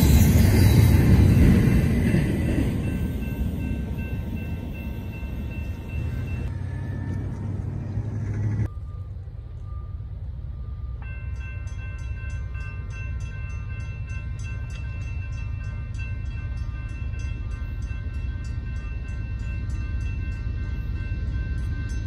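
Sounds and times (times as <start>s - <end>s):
train rumbling: 0.0s - 22.0s
ringing tones with regular ticks: 11.0s - 22.0s.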